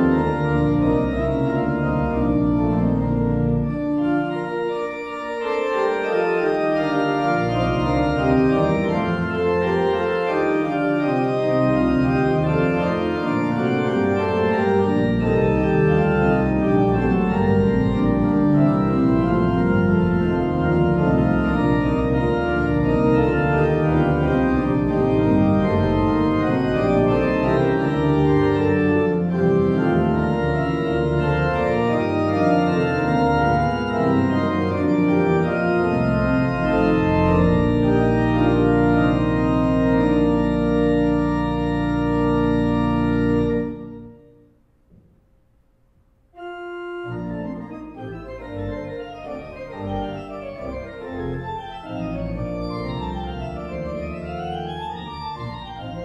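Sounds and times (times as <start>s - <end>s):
church organ chords: 0.0s - 45.5s, 46.2s - 56.0s
low organ pedal note: 0.0s - 45.5s, 46.3s - 56.0s.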